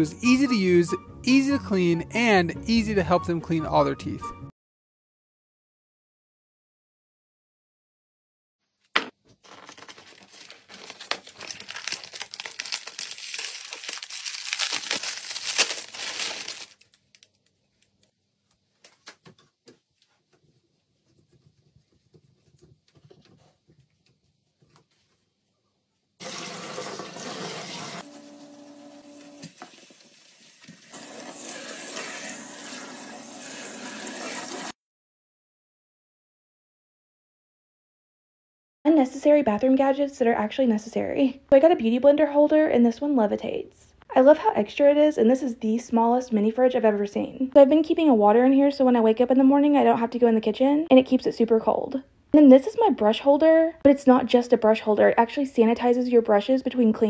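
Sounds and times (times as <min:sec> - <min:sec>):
paper packaging rustling and tearing: 0:09.2 - 0:17.9
tap water spraying into sink: 0:26.2 - 0:28.0, 0:29.2 - 0:34.7.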